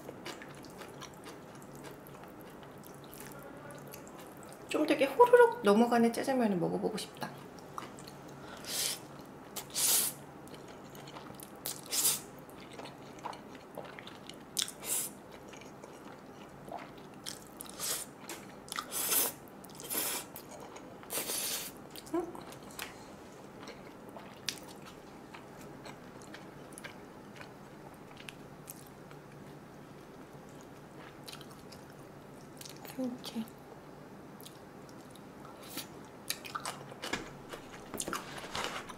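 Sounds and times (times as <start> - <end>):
person chewing: 0.0 - 4.6, 10.4 - 23.0, 23.6 - 29.5, 30.4 - 33.0, 34.4 - 38.9.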